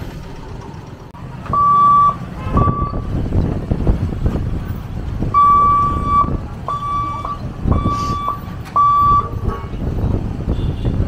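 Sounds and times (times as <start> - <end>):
road vehicles rumbling: 0.0 - 11.0
electronic warning beeper: 1.6 - 3.0, 5.4 - 9.3.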